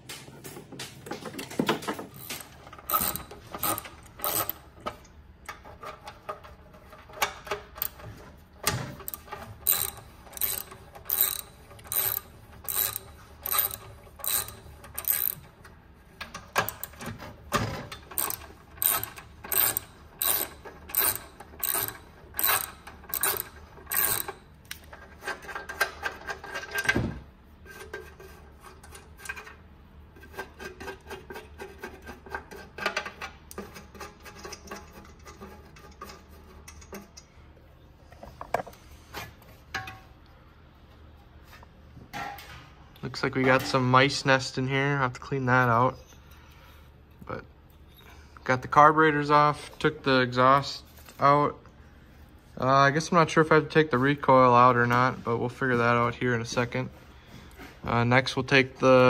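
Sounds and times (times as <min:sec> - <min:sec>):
ratchet wrench clicking: 0:02.2 - 0:04.6, 0:09.0 - 0:15.5, 0:18.1 - 0:24.8.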